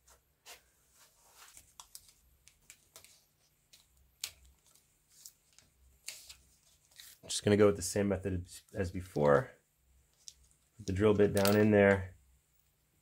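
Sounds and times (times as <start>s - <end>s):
tape rustling: 0.4s - 7.4s.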